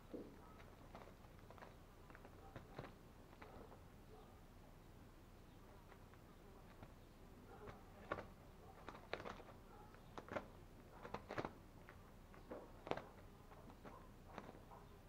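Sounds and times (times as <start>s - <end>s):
claws scratching plastic sack: 0.4s - 3.8s, 6.6s - 14.7s.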